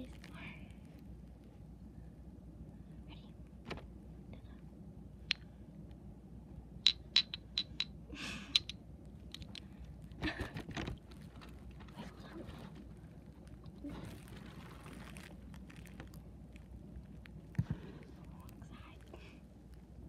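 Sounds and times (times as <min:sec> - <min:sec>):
handling rustle: 0:10.7 - 0:20.0.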